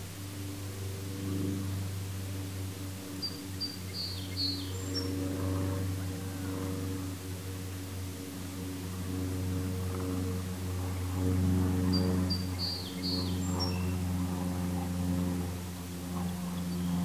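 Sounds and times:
distant engine hum: 0.0s - 17.0s
bird chirping: 3.2s - 5.1s.

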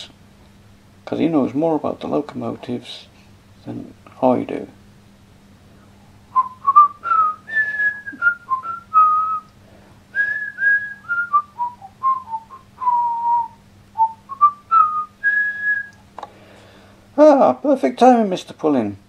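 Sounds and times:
faint low hum: 0.0s - 19.0s
person whistling a tune: 6.4s - 9.5s, 10.2s - 16.0s.

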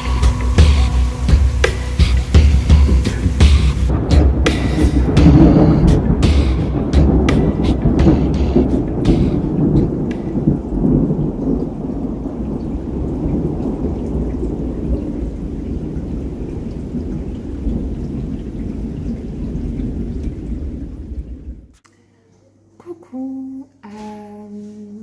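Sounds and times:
sharp taps of raindrops: 0.0s - 21.4s
heavy rain: 0.0s - 21.7s
low thunder rumble: 0.0s - 21.7s.

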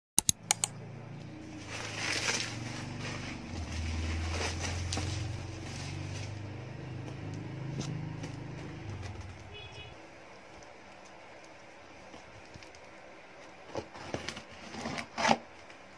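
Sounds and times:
sharp clicks: 0.2s - 0.8s
bubble wrap crinkling: 1.5s - 6.5s.

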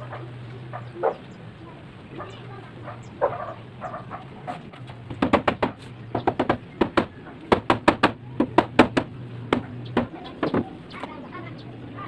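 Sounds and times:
rubber mallet knocking wood: 5.1s - 10.7s.

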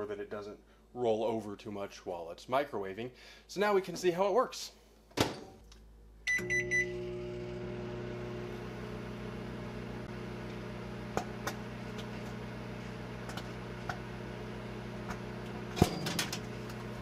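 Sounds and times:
microwave keypad beeps: 6.3s - 7.0s
microwave humming: 6.3s - 17.0s.

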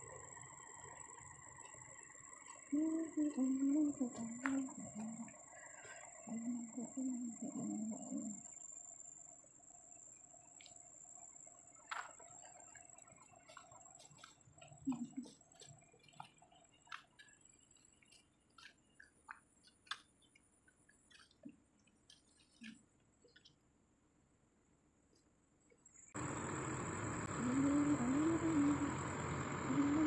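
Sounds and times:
steady high-pitched whine: 0.0s - 17.9s, 25.9s - 30.0s
faint irregular clicks: 10.5s - 23.7s.

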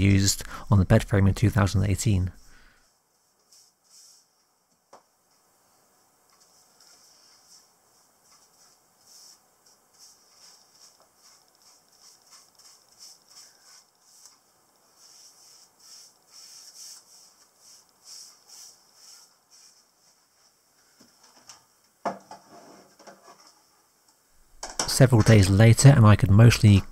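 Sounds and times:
paintbrush swishing on wood: 3.1s - 4.5s, 6.4s - 20.6s.

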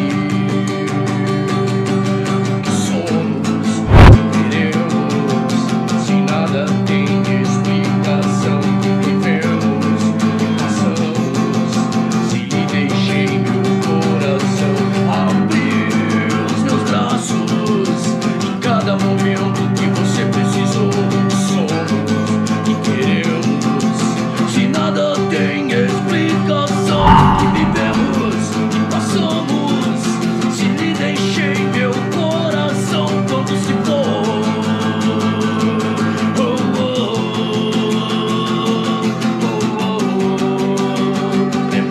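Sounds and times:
brief thump: 3.9s - 4.2s, 27.0s - 28.8s
sustained low accompaniment: 3.9s - 4.2s, 27.0s - 29.1s.

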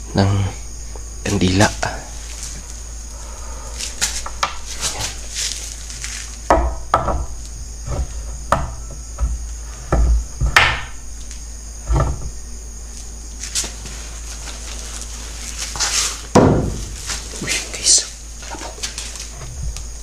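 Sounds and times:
crickets chirping: 0.0s - 20.0s
objects knocking on wooden table: 6.5s - 7.3s, 7.9s - 10.9s, 16.3s - 16.9s.

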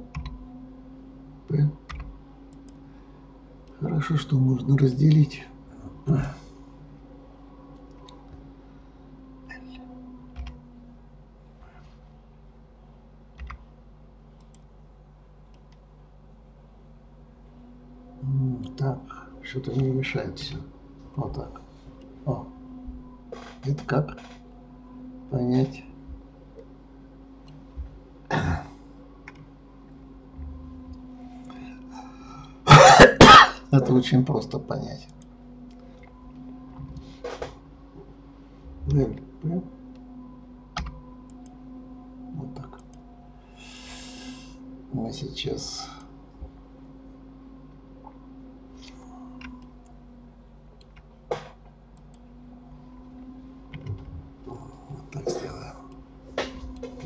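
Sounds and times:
low electrical hum: 0.0s - 57.0s
keyboard and mouse clicks: 0.1s - 0.4s, 1.9s - 2.8s, 10.3s - 10.6s, 13.4s - 13.6s, 29.2s - 29.5s, 40.8s - 41.5s.

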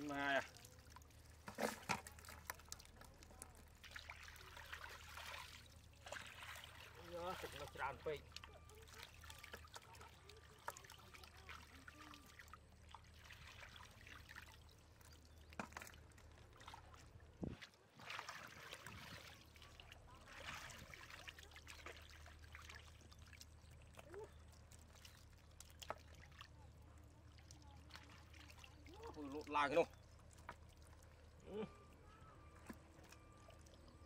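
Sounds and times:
basket swishing through water: 0.0s - 12.3s, 15.7s - 23.0s
water splashing and trickling: 0.0s - 34.0s.

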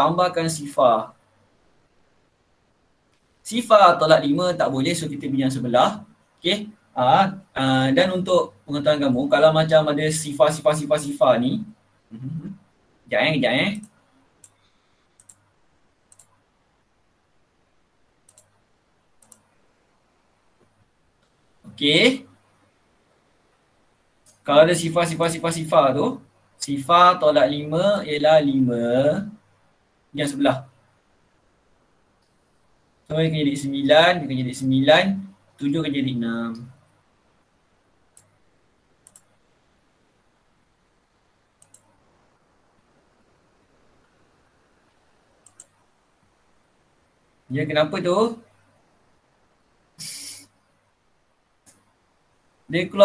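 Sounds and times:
faint room noise: 0.0s - 53.0s
computer mouse clicks: 13.8s - 15.4s, 16.1s - 16.4s, 18.3s - 18.6s, 19.2s - 19.5s, 39.0s - 39.4s, 41.6s - 42.0s, 45.4s - 45.8s.

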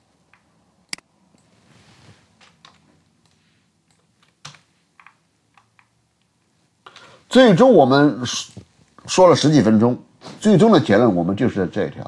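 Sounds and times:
computer mouse clicks: 2.5s - 6.0s.

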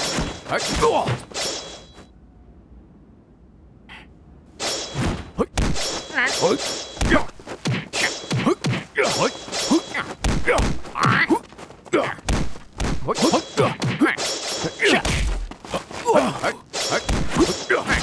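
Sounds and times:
fighters grunting and shouting: 0.3s - 1.3s, 5.4s - 12.3s, 12.9s - 18.0s.

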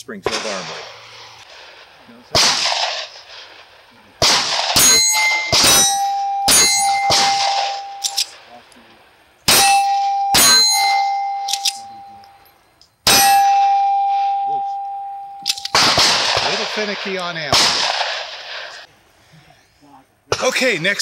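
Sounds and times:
pistol shots: 0.3s - 8.6s, 9.5s - 12.0s, 13.0s - 14.4s, 15.4s - 18.9s
bullet hitting steel plate target: 4.2s - 8.4s, 9.5s - 12.2s, 13.1s - 16.6s.

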